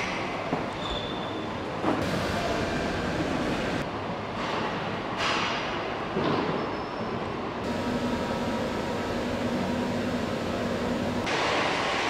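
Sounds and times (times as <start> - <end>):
factory machinery noise: 0.0 - 12.0.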